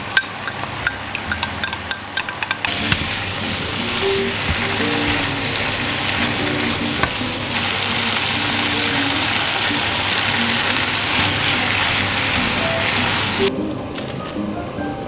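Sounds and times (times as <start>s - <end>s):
meat sizzling in a frying pan: 2.7s - 13.5s.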